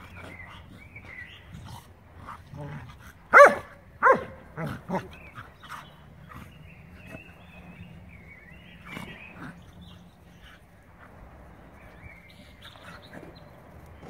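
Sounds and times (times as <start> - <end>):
dogs barking: 3.3 - 5.2.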